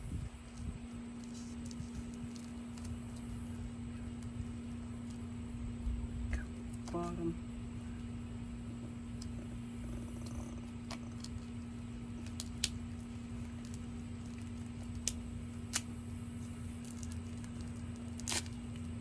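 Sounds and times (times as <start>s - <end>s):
steady low hum: 0.0s - 19.0s
plastic packaging clicks: 12.2s - 15.9s.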